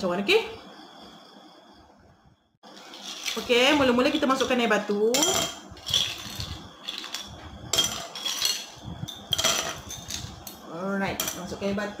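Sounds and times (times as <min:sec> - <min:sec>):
ice cubes clinking into glass: 0:05.2 - 0:10.3.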